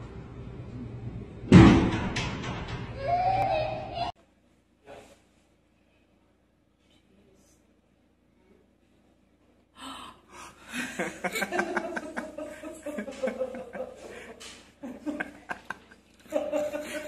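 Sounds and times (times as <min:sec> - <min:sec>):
people laughing and exclaiming: 0:10.7 - 0:17.0.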